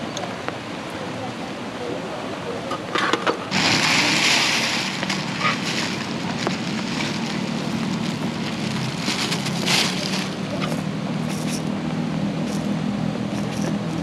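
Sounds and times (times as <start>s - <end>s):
even hiss: 3.4s - 11.7s
tissue rustling in steel pot: 3.5s - 10.6s.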